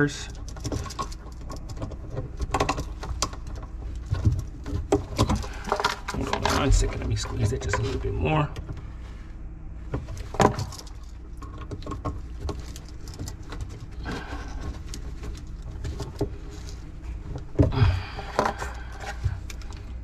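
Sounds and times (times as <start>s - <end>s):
handling noises: 0.0s - 20.0s
work gloves rustling: 8.8s - 20.0s
hand tools clicking and scraping: 10.1s - 20.0s.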